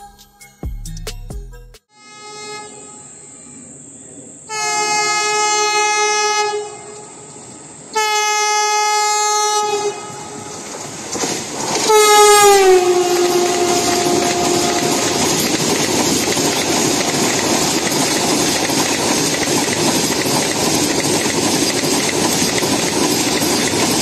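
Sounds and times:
train horn blasts: 1.9s - 3.5s, 4.5s - 10.6s, 11.9s - 15.6s
train rushing past: 9.6s - 24.0s.

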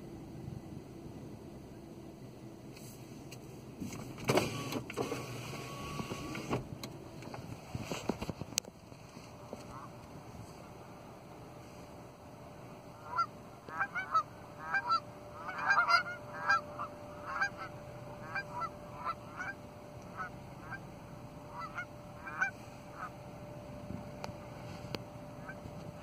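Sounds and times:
geese honking: 9.5s - 10.0s, 12.9s - 23.4s, 24.2s - 26.0s.

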